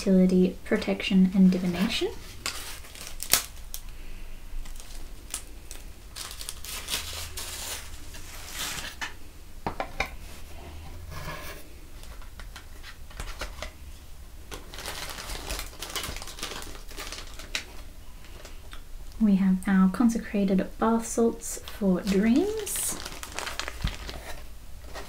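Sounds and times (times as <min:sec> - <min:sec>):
plastic and tissue paper crinkling: 0:01.0 - 0:09.2, 0:14.5 - 0:18.7, 0:21.4 - 0:25.0.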